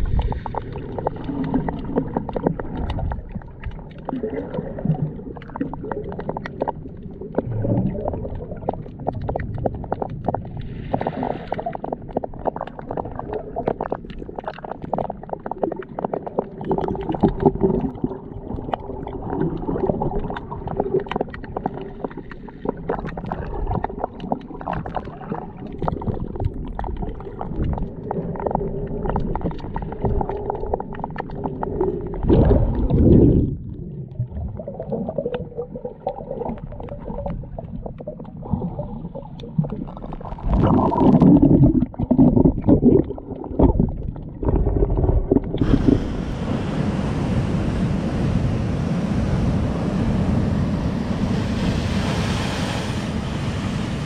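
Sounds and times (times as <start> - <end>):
crackling ticks underwater: 0.0 - 45.7
underwater sloshing and gurgling: 0.0 - 54.0
wind on microphone: 45.5 - 54.0.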